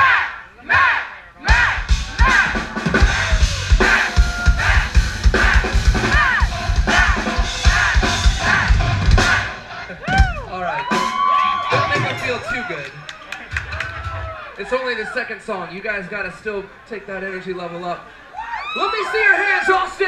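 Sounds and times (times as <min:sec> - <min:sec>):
crowd chanting: 0:00.0 - 0:10.2
rock drum kit playing: 0:01.5 - 0:12.6.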